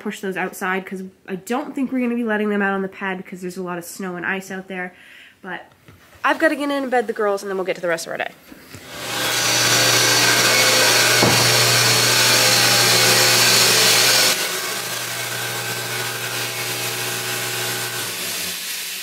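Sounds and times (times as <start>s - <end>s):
electric motor hum: 8.8s - 19.0s
loud rushing machinery noise: 9.0s - 16.0s.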